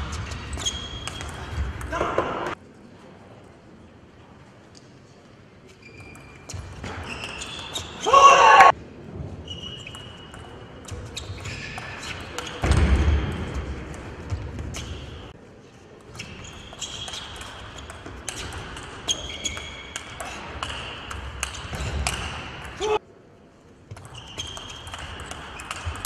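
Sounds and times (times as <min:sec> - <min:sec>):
shoes squeaking on floor: 0:00.0 - 0:01.5, 0:05.7 - 0:08.1, 0:09.4 - 0:10.3, 0:10.9 - 0:12.7, 0:16.1 - 0:20.0, 0:24.0 - 0:26.0.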